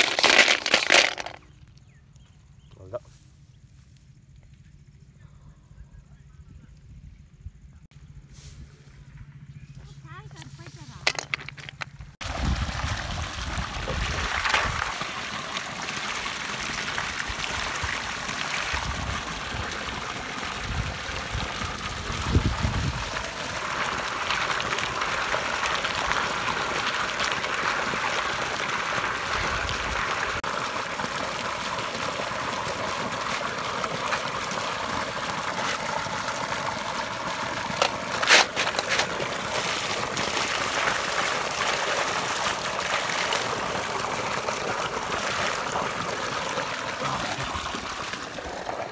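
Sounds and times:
water splashing onto ground: 0.0s - 1.4s, 11.0s - 48.9s
water running into steel bowl: 12.3s - 48.9s.

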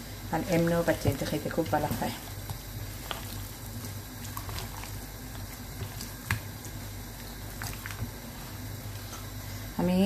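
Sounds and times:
steady low hum: 0.0s - 10.0s
hand squelching raw chicken: 2.4s - 8.6s.

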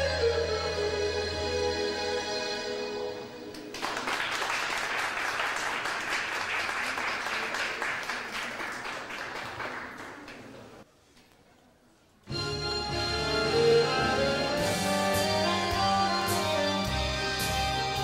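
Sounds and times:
accordion: 0.0s - 3.4s, 12.3s - 18.0s
audience applause: 3.5s - 10.8s.

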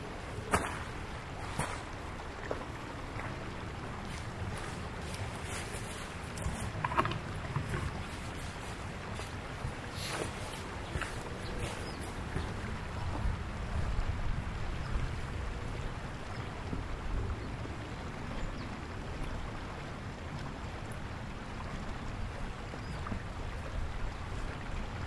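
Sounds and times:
wind buffeting microphone: 0.0s - 18.8s.

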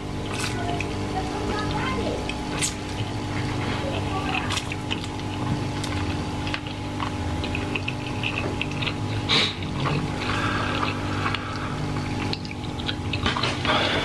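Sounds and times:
noodles slurped and chewed: 0.2s - 14.0s
wet mouth clicks and smacks: 4.5s - 10.0s, 10.8s - 13.6s
breathy noise: 9.2s - 12.1s.

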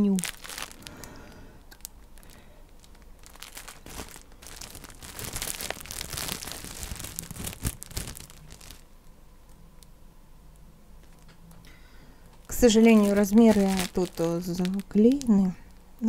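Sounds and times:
packaging crinkling and rustling: 0.0s - 9.2s, 12.3s - 15.8s.

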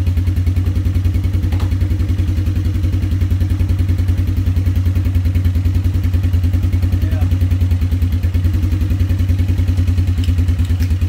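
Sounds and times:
atv engine idling: 0.0s - 11.0s
light click: 10.2s - 11.0s.

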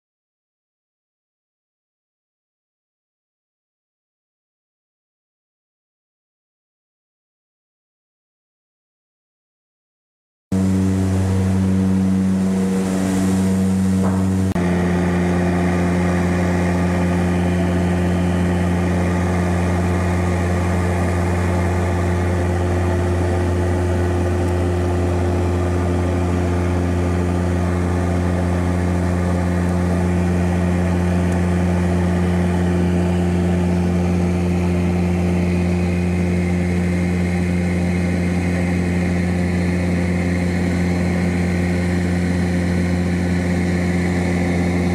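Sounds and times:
turboprop engines droning in flight: 10.5s - 44.9s.

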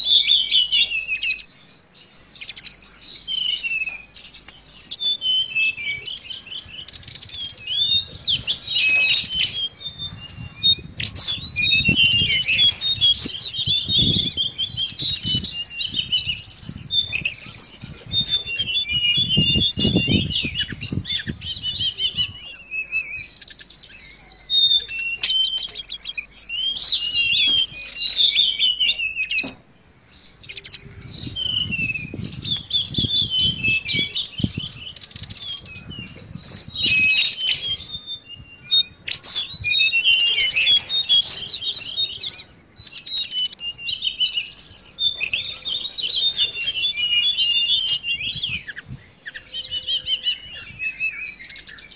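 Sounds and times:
bird twittering song: 0.0s - 51.9s.

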